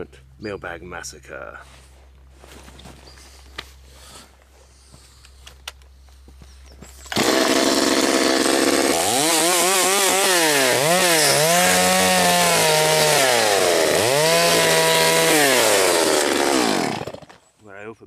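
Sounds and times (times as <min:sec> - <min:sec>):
chainsaw revving: 0:07.1 - 0:17.4.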